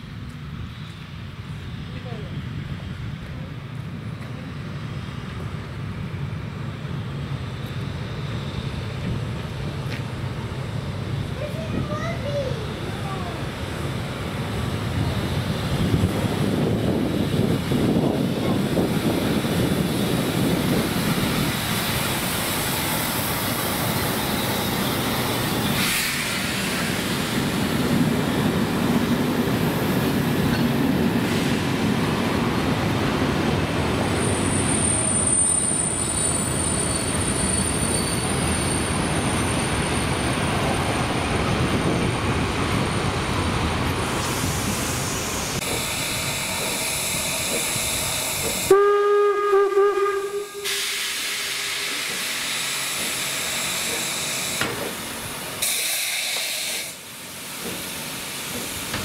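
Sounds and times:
train wheels rumbling on rails: 0:00.0 - 0:59.0
high wheel squeal: 0:34.1 - 0:40.4.

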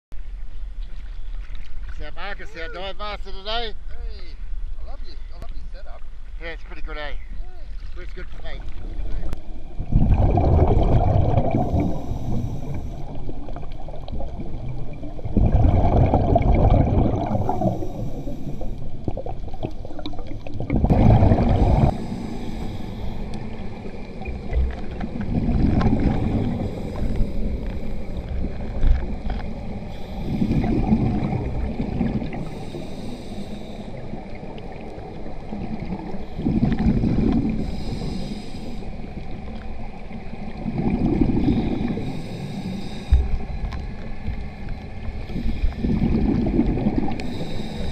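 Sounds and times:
exhaled bubbles rumbling: 0:08.5 - 0:32.9, 0:33.8 - 0:38.2, 0:38.8 - 0:42.2, 0:43.1 - 0:47.9
regulator hiss: 0:11.6 - 0:13.6, 0:17.3 - 0:20.0, 0:21.7 - 0:24.0, 0:29.6 - 0:30.8, 0:32.3 - 0:34.2, 0:37.6 - 0:39.1, 0:41.4 - 0:43.5, 0:47.1 - 0:47.9.

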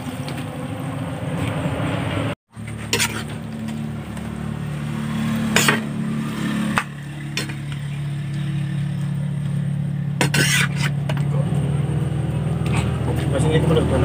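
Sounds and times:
spatula scraping a pan: 0:02.6 - 0:03.8, 0:05.2 - 0:08.0, 0:10.2 - 0:11.3, 0:12.6 - 0:13.3.

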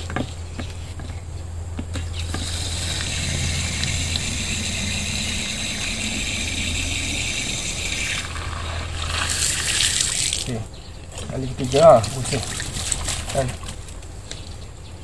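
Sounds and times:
low hum: 0:00.0 - 0:11.1
water running into plastic tank: 0:02.0 - 0:14.1.

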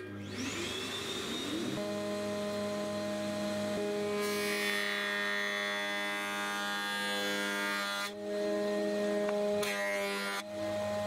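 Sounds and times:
motor whine: 0:00.0 - 0:04.4
planer cutting wood: 0:00.0 - 0:11.0.

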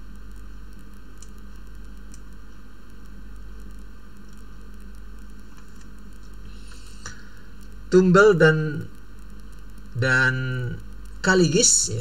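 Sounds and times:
low mains hum: 0:00.0 - 0:12.0
microphone hiss: 0:00.0 - 0:12.0
computer mouse clicks: 0:01.1 - 0:02.4.

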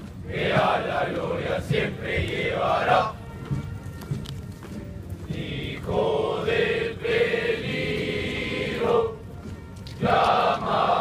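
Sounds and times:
crowd singing in unison: 0:00.3 - 0:03.2, 0:05.3 - 0:09.2, 0:10.0 - 0:11.0.

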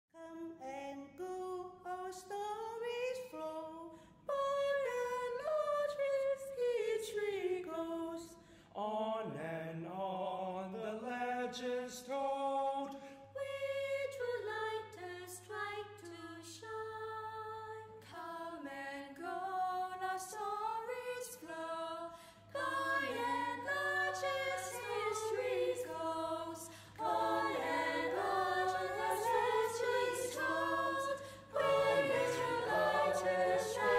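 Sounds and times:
choir singing: 0:12.8 - 0:33.9.

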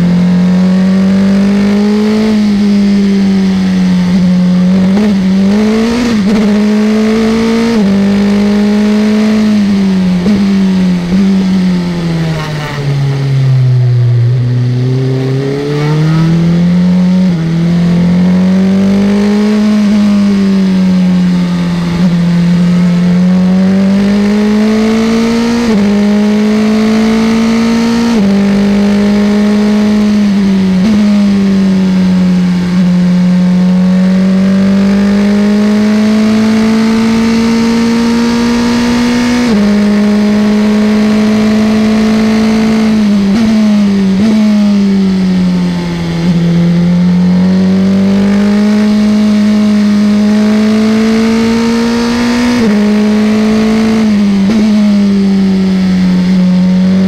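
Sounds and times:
racing car engine revving: 0:00.0 - 0:57.0.

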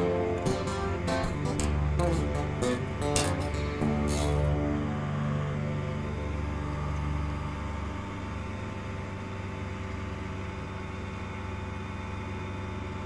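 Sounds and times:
ultralight aircraft engine: 0:00.0 - 0:13.0.

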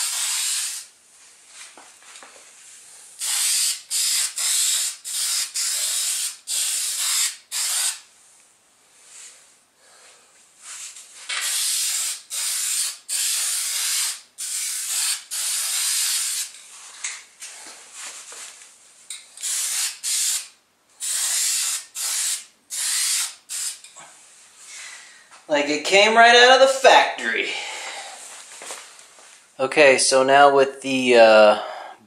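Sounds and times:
spray-paint can hissing: 0:00.0 - 0:00.9, 0:03.2 - 0:08.1, 0:11.3 - 0:16.6, 0:19.4 - 0:23.9.

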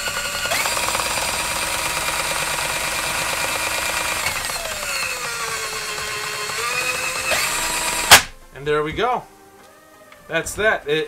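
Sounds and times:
drain auger motor whining: 0:00.0 - 0:08.4.

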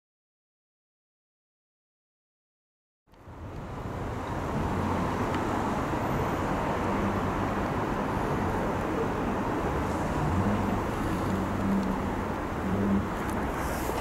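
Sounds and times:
vehicle rumbling: 0:03.1 - 0:14.0.

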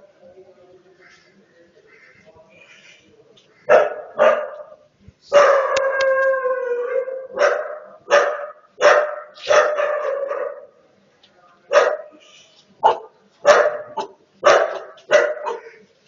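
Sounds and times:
dog barking: 0:03.7 - 0:05.8, 0:07.4 - 0:10.7, 0:11.7 - 0:12.2, 0:12.8 - 0:15.8.

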